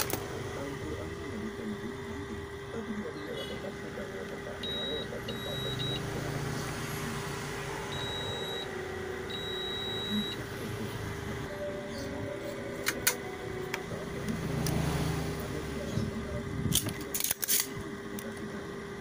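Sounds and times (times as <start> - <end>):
multimeter high-pitched beeps: 4.5 - 6.4, 7.9 - 10.5.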